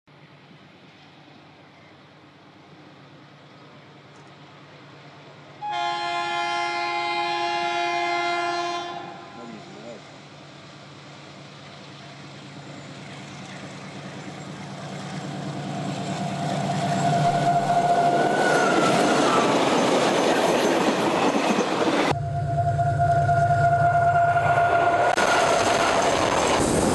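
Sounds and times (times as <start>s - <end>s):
freight train passing: 0.2s - 26.9s
locomotive horn blast: 5.6s - 9.8s, 22.2s - 25.6s.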